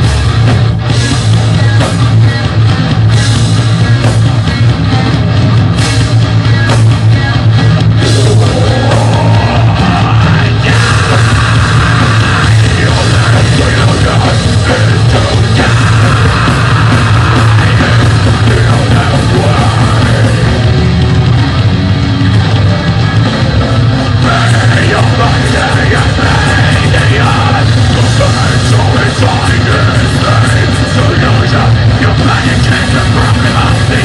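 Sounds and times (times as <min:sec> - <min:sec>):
death metal band playing: 0:00.0 - 0:34.0
harsh shouted vocals: 0:08.0 - 0:20.9, 0:24.1 - 0:34.0.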